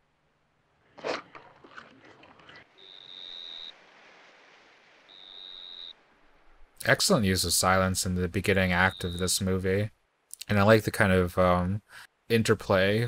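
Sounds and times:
high whistle-like tone: 5.1 - 6.0, 8.8 - 9.2.

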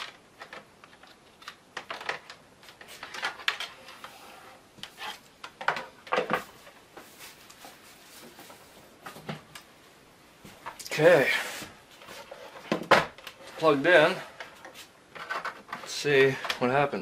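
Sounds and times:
plastic and cable clicks and rattles: 0.0 - 3.7.

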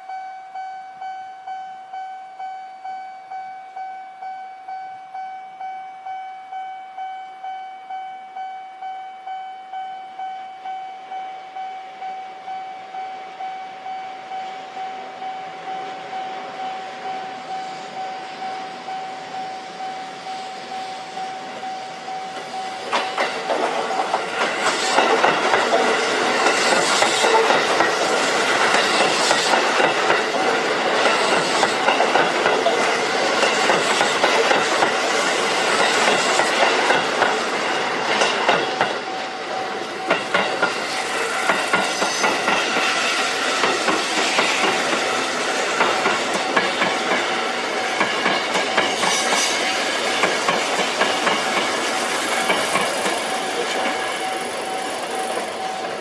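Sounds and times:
level crossing alarm ringing: 0.0 - 24.6, 35.6 - 41.8
train wheels clacking over rail joints: 22.3 - 56.0.

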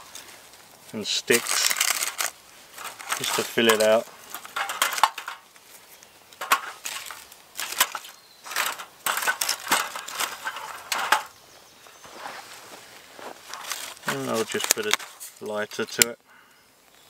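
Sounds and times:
bark crackling and rustling: 0.0 - 11.4, 12.0 - 16.0.

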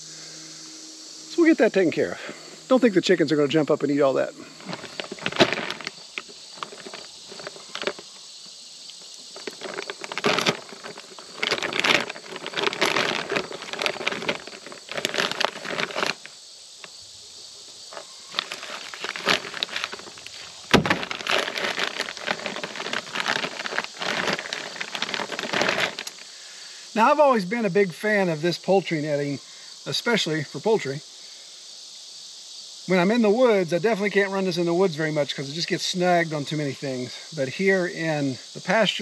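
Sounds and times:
plastic wrapping crinkling: 4.6 - 8.0, 9.2 - 16.3, 17.9 - 26.2.

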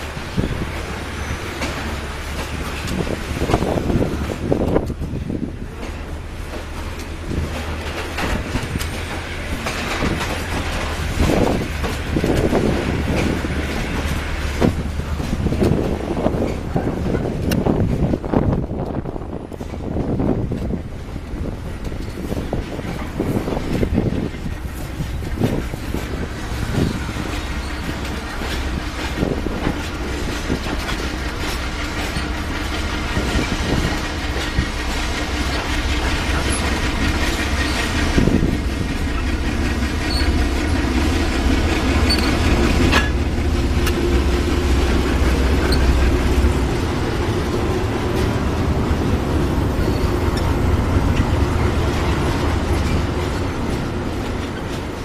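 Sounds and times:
freight wagons rumbling: 0.0 - 55.0
wheels knocking over rail joints: 22.8 - 55.0.

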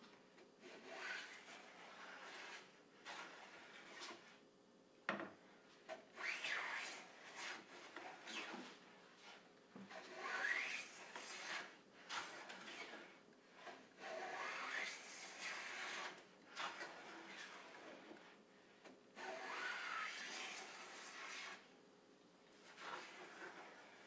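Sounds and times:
hand plane rasping on wood: 0.6 - 4.2, 9.9 - 18.1, 19.2 - 21.6, 22.7 - 24.0.

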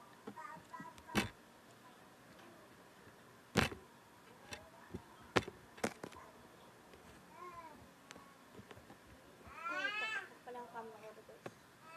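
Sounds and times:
tablet handling knocks and taps: 1.0 - 1.4, 3.6 - 3.8, 4.5 - 6.2.

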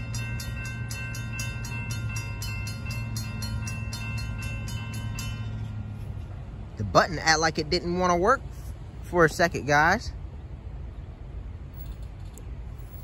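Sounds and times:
crossing bell ringing: 0.0 - 8.3
train rumbling: 0.0 - 13.0.

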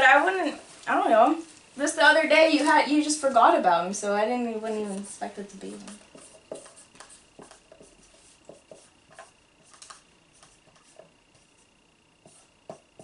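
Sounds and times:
marker scratching on board: 5.8 - 11.6, 12.2 - 13.0.

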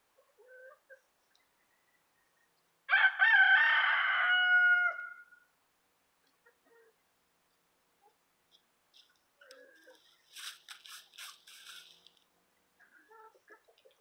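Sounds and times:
rooster crowing: 2.9 - 5.3.

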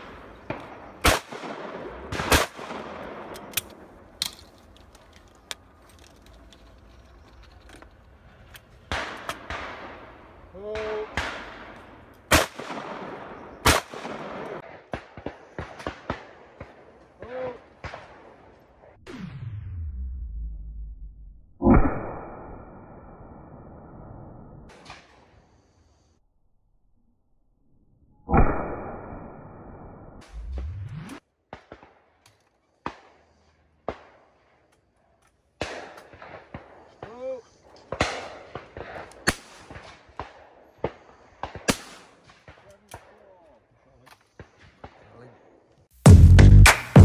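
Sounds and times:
loud shotgun shots with echo: 0.0 - 3.4, 8.9 - 16.8
shotgun clicks and cracks: 2.1 - 9.7.

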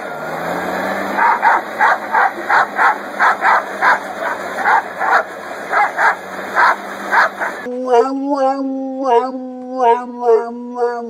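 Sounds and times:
leaf blower hissing: 0.0 - 7.7
dog barking rapidly: 1.2 - 7.7.

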